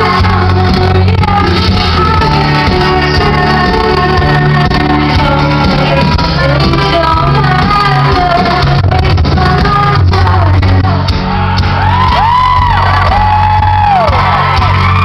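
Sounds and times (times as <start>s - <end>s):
woman singing lead vocal: 0.0s - 11.4s
live electropop band: 0.0s - 15.0s.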